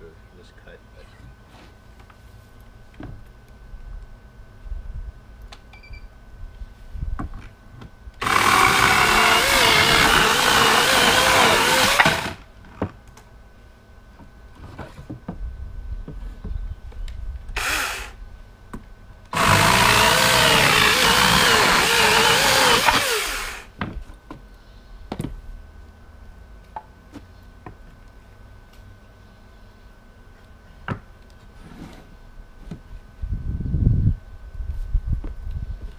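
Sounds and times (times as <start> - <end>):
electric chainsaw cutting wood: 8.2 - 12.5, 17.6 - 18.2, 19.3 - 23.8.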